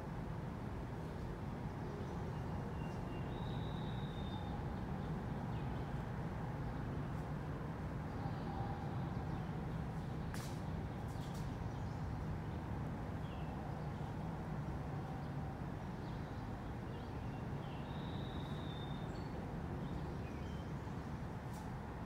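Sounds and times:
faint bird chirps: 2.4s - 4.6s, 17.7s - 19.4s.

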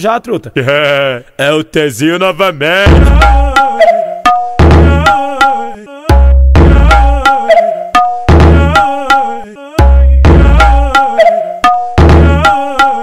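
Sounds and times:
deep bass hits: 2.9s - 3.6s, 4.6s - 5.1s, 6.1s - 7.2s, 8.3s - 8.8s, 9.8s - 10.9s
looped melodic sample: 3.0s - 13.0s.

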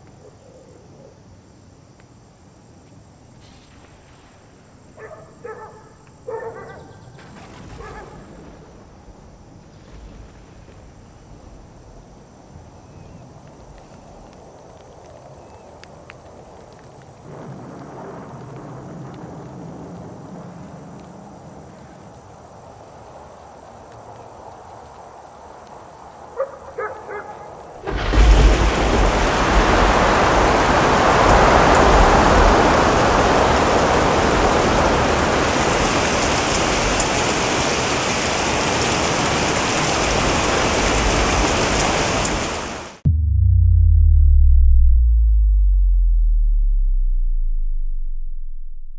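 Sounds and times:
thunder rumbling: 17.2s - 21.3s, 27.8s - 37.5s, 38.4s - 48.9s
heavy rain pouring: 27.7s - 43.2s.

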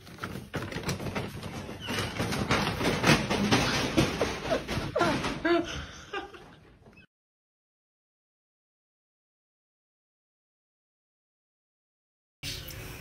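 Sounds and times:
paper bag crackling and scraping: 0.0s - 4.7s.

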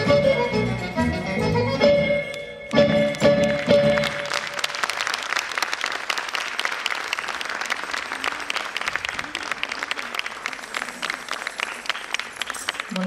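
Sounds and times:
audience applauding: 3.1s - 13.0s.

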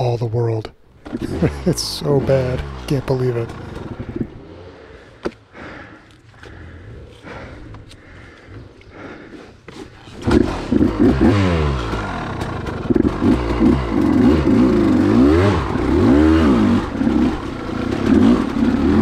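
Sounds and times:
dirt bike kickstarting: 0.9s - 19.0s
dirt bike engine revving: 1.0s - 6.0s, 10.0s - 19.0s.

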